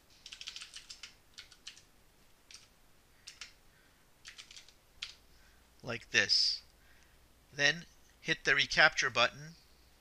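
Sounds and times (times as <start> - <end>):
computer keyboard typing: 0.2 - 1.9, 2.5 - 3.6, 4.2 - 5.2.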